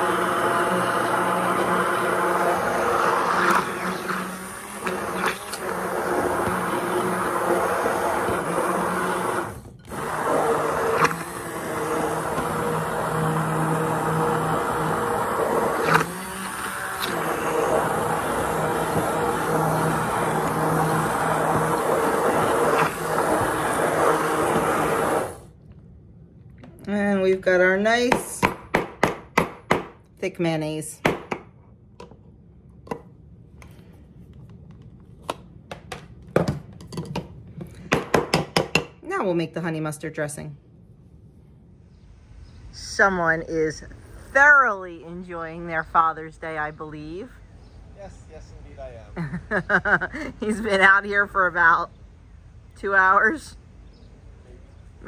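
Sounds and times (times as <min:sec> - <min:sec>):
immersion blender motor running: 0:00.0 - 0:25.5.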